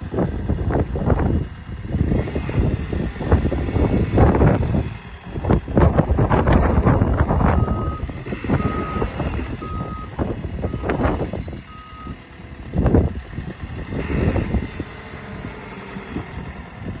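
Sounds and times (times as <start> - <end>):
diesel engine low rumble: 0.0 - 17.0
reversing alarm beeping: 2.3 - 12.2, 13.4 - 16.6.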